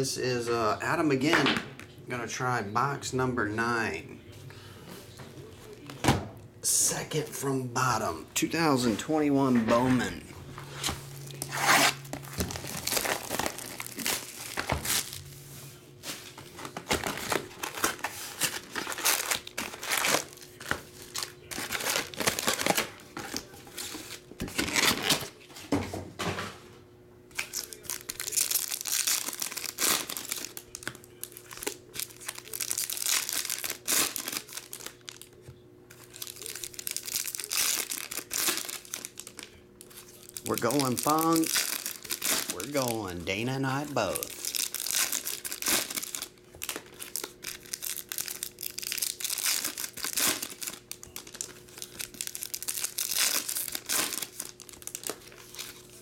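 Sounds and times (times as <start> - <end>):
plastic shrink wrap crinkling: 10.7 - 25.4, 27.3 - 56.0
foil packs crinkling and tearing: 10.8 - 15.4, 16.0 - 25.4, 27.4 - 56.0.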